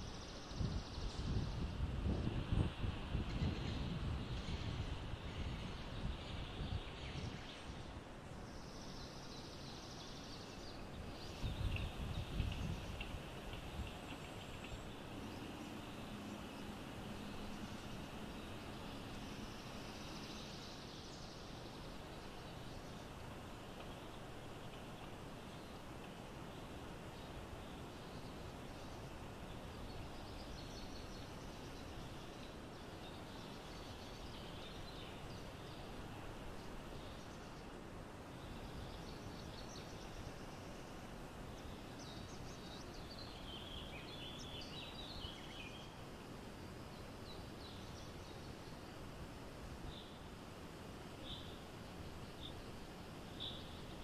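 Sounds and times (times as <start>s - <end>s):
wind rumble on microphone: 0.0s - 8.1s, 10.9s - 20.1s
steady hiss: 0.0s - 54.0s
small birds chirping: 5.3s - 46.0s, 51.2s - 54.0s.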